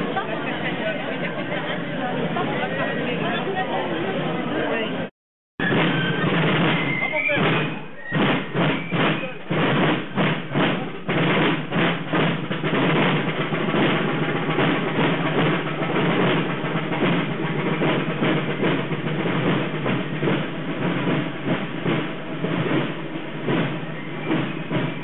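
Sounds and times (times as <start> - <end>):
marching band playing: 5.6 - 25.0
snare and bass drums: 5.6 - 25.0.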